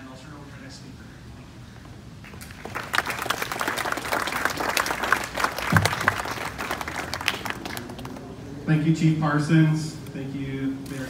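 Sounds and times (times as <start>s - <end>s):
audience applauding: 2.3s - 8.4s.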